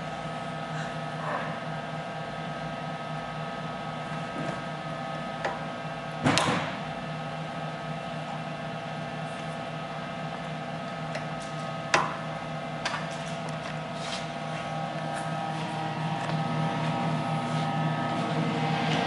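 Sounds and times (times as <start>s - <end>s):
power supply humming: 13.4s - 19.0s.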